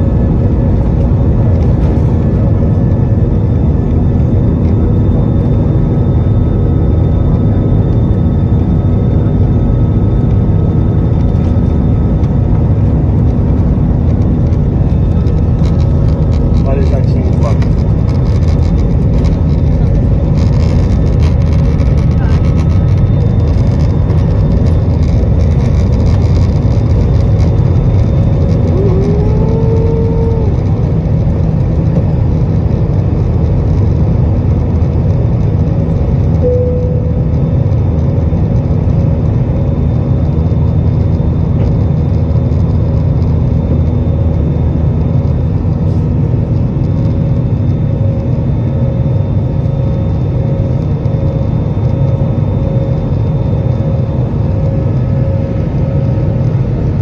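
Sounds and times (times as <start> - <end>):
short rising whine: 0.0 - 33.0, 35.9 - 42.6
jet engines roaring in cabin: 0.0 - 57.0.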